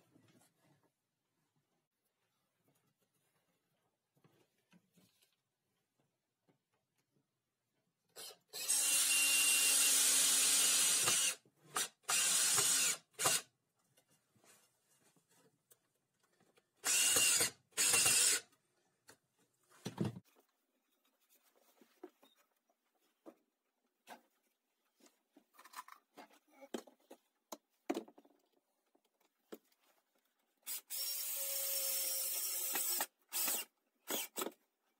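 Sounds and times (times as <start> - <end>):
cordless drill driving screws: 8.2 - 13.5, 16.8 - 18.5, 30.7 - 34.6.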